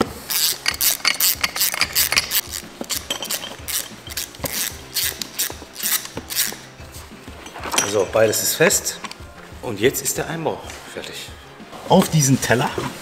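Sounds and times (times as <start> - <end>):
hand ratchet clicking: 0.3 - 6.8.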